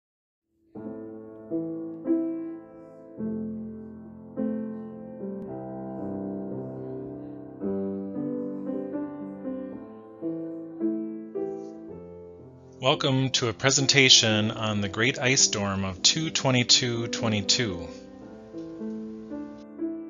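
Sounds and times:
slow solo piano: 0.6 - 12.8, 17.5 - 20.0.

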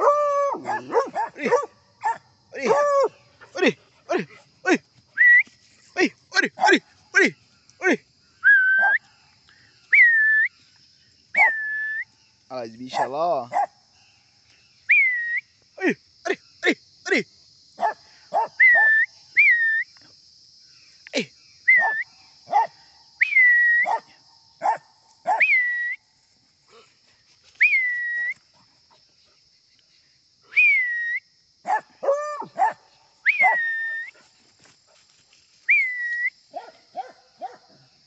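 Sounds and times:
dog high cry: 0.0 - 3.1, 31.7 - 34.1.

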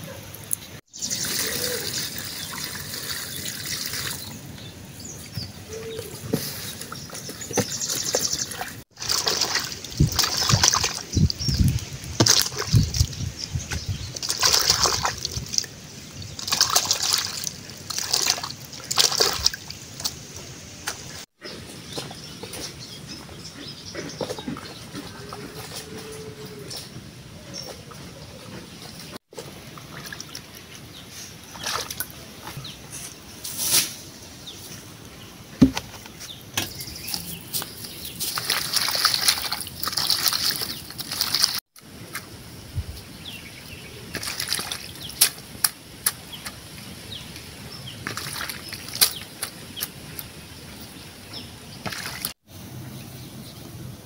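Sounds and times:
hands splashing water in basin: 6.5 - 13.2, 14.1 - 20.2, 31.5 - 32.2, 38.2 - 41.6, 44.1 - 45.5, 48.0 - 49.6, 51.9 - 52.4.

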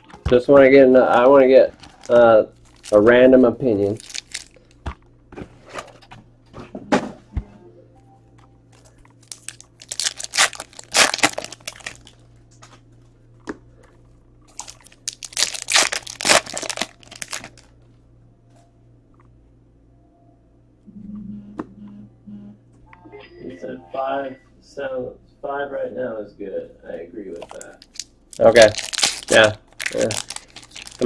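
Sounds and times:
foil wrappers tearing and crinkling: 1.2 - 3.1, 3.8 - 4.6, 9.2 - 12.2, 14.5 - 17.7, 27.4 - 31.0.

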